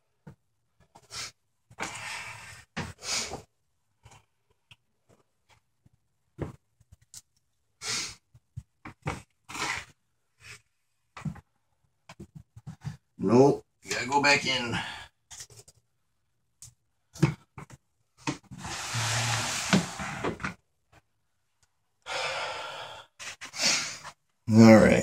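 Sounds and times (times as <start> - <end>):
snake hissing: 18.6 - 20.1.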